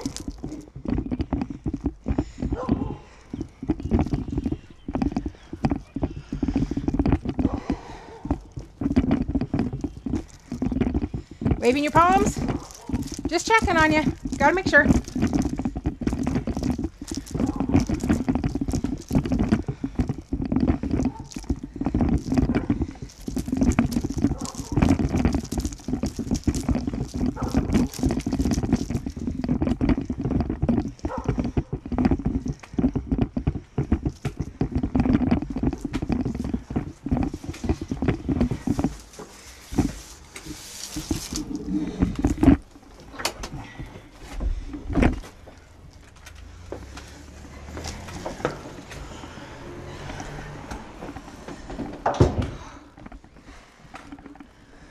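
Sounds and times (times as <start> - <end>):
footsteps: 0.0 - 54.9
microphone handling rustling: 0.0 - 54.9.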